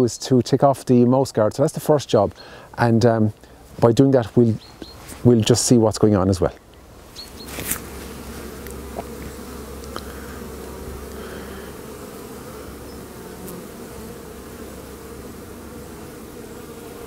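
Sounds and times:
honeybees buzzing: 6.8 - 17.0.

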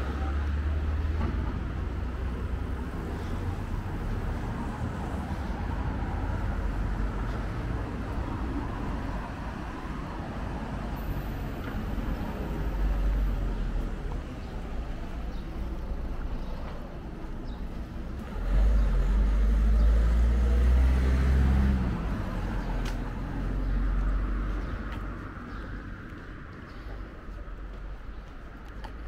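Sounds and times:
low traffic rumble: 0.0 - 29.0
vehicle engine passing by: 18.2 - 25.0.

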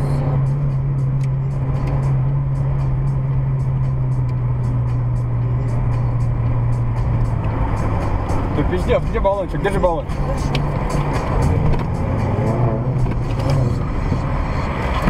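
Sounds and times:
car engine and tyre drone: 0.0 - 15.0.

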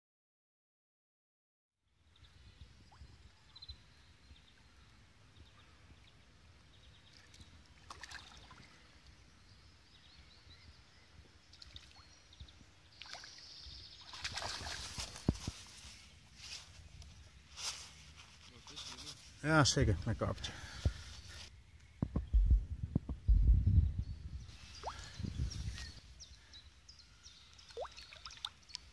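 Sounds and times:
soft water splashes: 6.9 - 9.2, 11.4 - 12.2, 12.8 - 15.8, 27.4 - 28.9
loud splash: 14.1 - 15.0
low wind rumble: 19.9 - 26.5.

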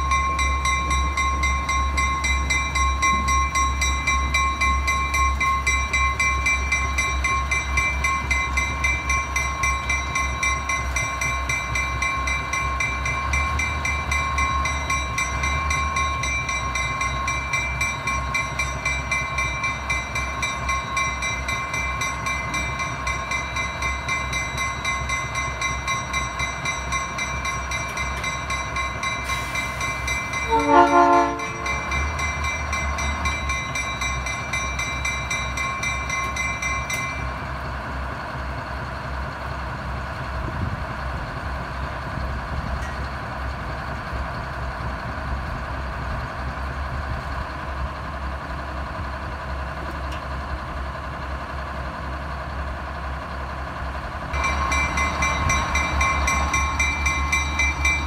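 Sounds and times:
locomotive engine rumbling: 0.0 - 58.0
locomotive horn blast: 30.4 - 31.8.

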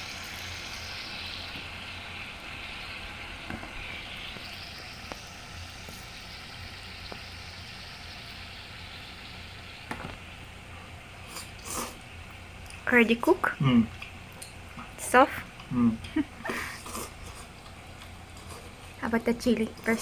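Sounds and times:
hot pot simmering hiss: 0.0 - 20.0.

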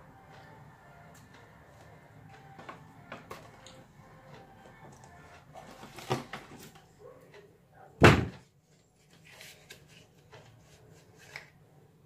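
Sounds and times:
loud thump: 8.0 - 8.4.

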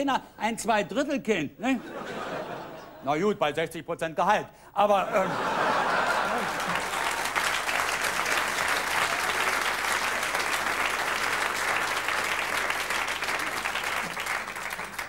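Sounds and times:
audience applauding: 5.4 - 15.0.

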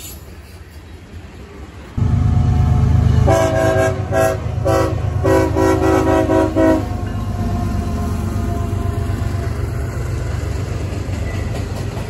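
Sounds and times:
low rumble of passing train: 0.0 - 12.0
locomotive air horn blasts: 2.0 - 7.1.

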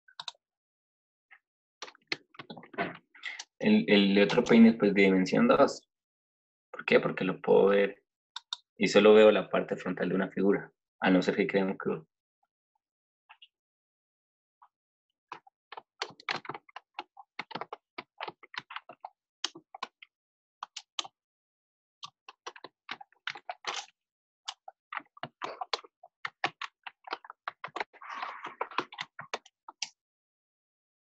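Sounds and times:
computer keyboard typing: 4.2 - 4.6, 15.3 - 20.0, 20.6 - 21.1, 22.0 - 23.9, 24.5 - 29.9.

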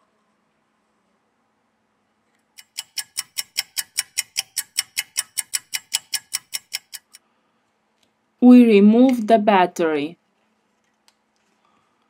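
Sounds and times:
clock ticking: 2.6 - 7.2.

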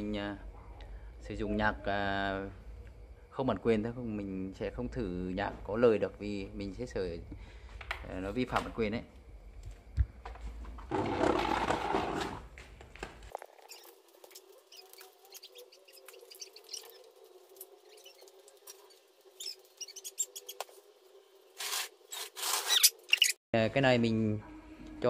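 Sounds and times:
small squeaks: 13.4 - 20.8, 21.6 - 23.4.

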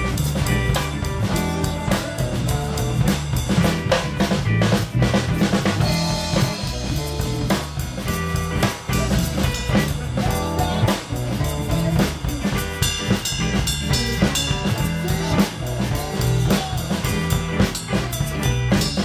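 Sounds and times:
bass line: 0.0 - 19.0
drum kit beat: 0.0 - 19.0
electric guitar: 0.0 - 19.0
keyboard: 0.0 - 19.0.

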